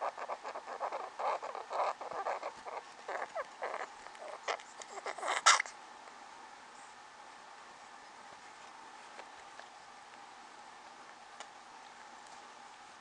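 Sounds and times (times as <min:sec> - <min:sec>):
rat squeak: 0:00.0 - 0:05.7.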